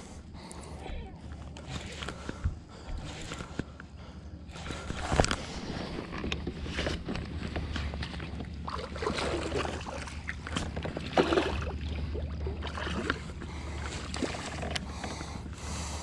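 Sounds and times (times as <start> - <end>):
steady low hum: 0.0 - 16.0
fish splashing at water surface: 8.6 - 13.3.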